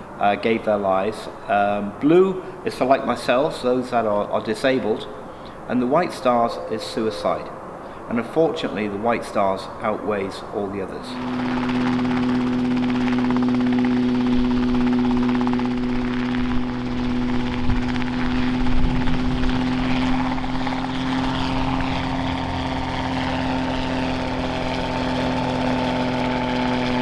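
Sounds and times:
helicopter rotor and engine drone: 0:00.0 - 0:27.0.

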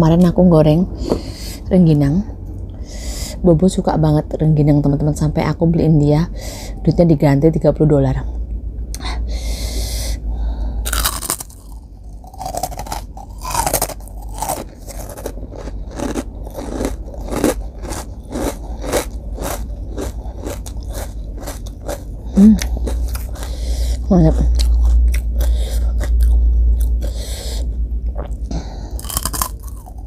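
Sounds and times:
crunchy chewing of rice cracker: 0:10.8 - 0:27.2, 0:29.0 - 0:30.0.

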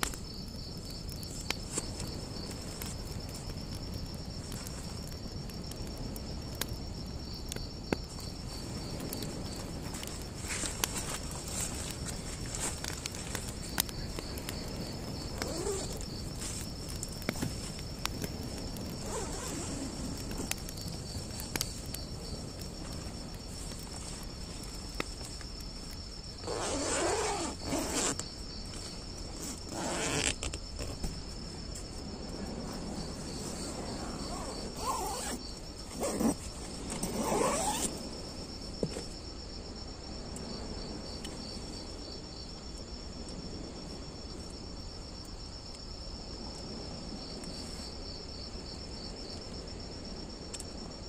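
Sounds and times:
crickets chirping: 0:00.0 - 0:51.0
tent fabric rustling: 0:09.9 - 0:13.4, 0:15.4 - 0:16.6, 0:19.0 - 0:20.1, 0:26.4 - 0:31.0, 0:33.3 - 0:37.9.

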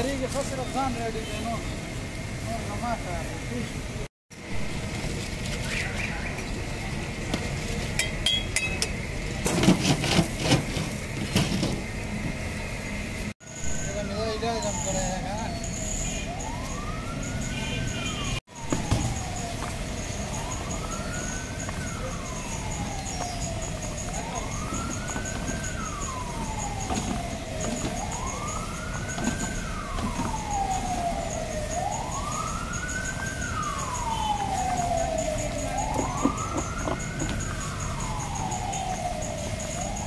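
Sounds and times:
street noise: 0:00.0 - 0:40.0
wailing siren: 0:04.4 - 0:07.8, 0:13.4 - 0:40.0.

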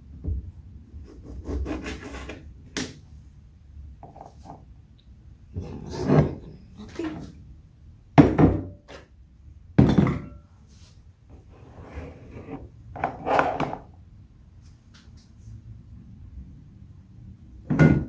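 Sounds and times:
glass pitcher knocking on counter: 0:09.8 - 0:10.4, 0:17.7 - 0:18.0.

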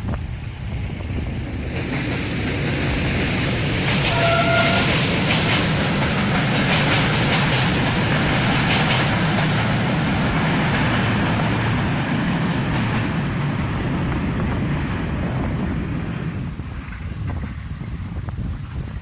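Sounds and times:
train rail rumble: 0:00.0 - 0:19.0
train wheel clicks: 0:01.6 - 0:11.9.

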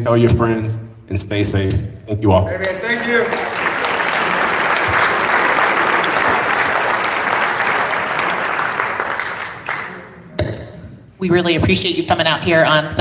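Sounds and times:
audience applauding: 0:02.6 - 0:10.3.

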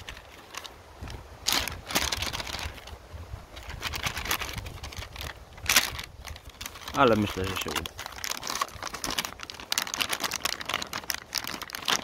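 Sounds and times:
plastic and foil packaging crinkling: 0:00.0 - 0:12.0.

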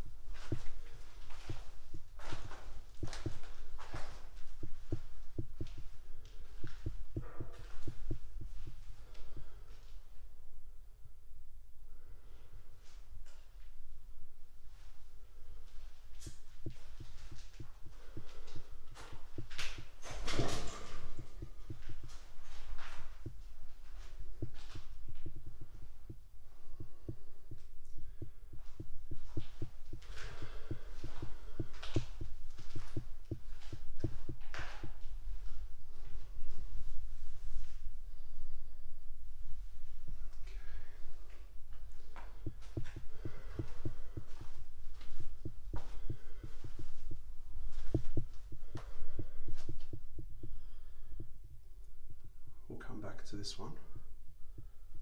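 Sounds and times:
steady low hum: 0:00.0 - 0:55.0
footsteps on concrete floor: 0:00.3 - 0:09.6, 0:16.2 - 0:36.2, 0:41.3 - 0:51.3
footsteps on concrete: 0:26.8 - 0:35.0, 0:42.1 - 0:47.0, 0:47.6 - 0:50.3.

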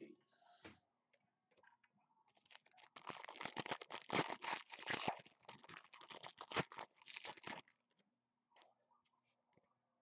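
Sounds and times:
foil wrapper tearing and crinkling: 0:02.3 - 0:07.8.

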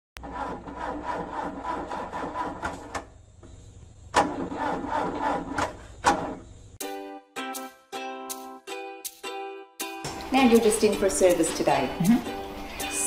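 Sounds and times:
car mechanical grinding: 0:00.2 - 0:03.2, 0:04.0 - 0:06.6.

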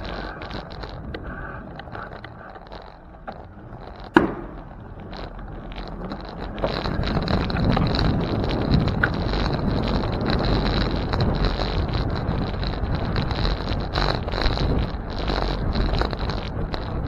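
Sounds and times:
road and tyre noise: 0:00.0 - 0:17.0
wind buffeting microphone: 0:00.0 - 0:17.0
sharp knock: 0:04.2 - 0:04.6.

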